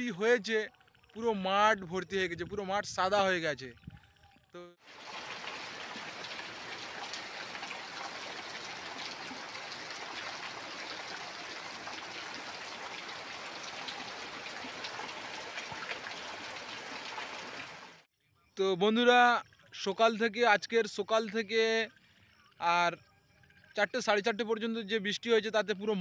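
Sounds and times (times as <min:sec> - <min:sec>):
heavy rain falling: 0:04.9 - 0:18.0.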